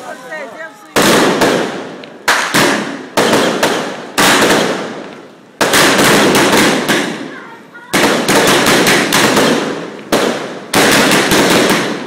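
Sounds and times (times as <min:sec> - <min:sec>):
crackling hiss: 0:00.0 - 0:12.0
fireworks bangs: 0:00.0 - 0:12.0.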